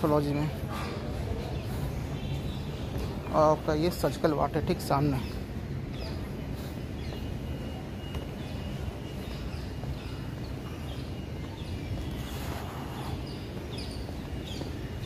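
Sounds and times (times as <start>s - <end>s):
bird chirping: 1.6s - 15.0s.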